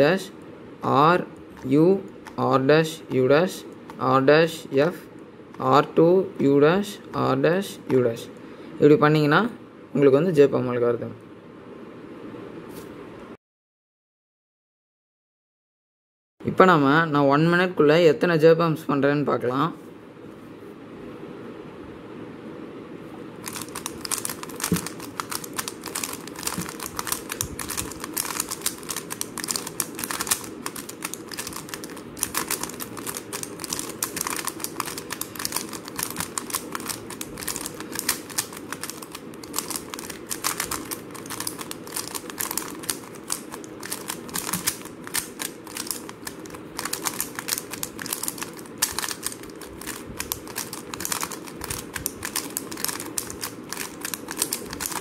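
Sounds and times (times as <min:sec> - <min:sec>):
plastic puzzle cube clicking: 0:23.5 - 0:55.0.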